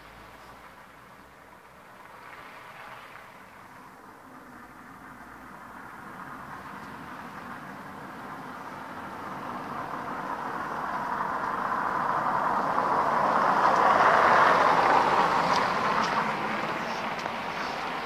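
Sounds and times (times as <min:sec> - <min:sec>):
vehicle driving past: 0:04.5 - 0:18.0.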